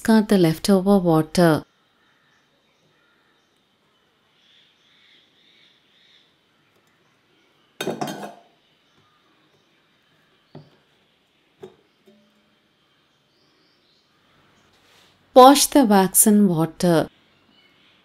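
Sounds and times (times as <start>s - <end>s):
knife clattering onto dish: 7.8s - 8.5s.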